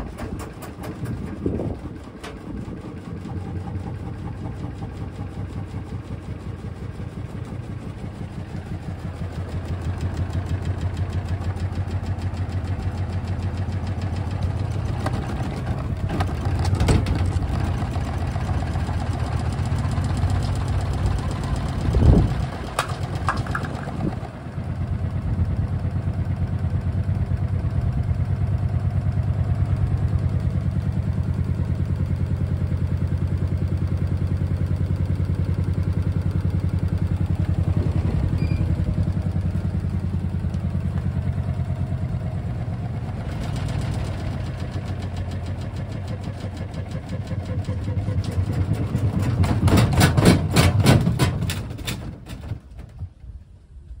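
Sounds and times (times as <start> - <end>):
washing machine knocking loudly: 0.0 - 2.5, 48.8 - 51.5.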